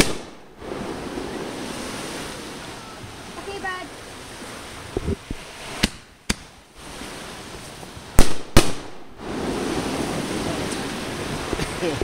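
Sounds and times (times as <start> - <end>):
firework bangs: 0.0 - 1.2, 8.1 - 10.9.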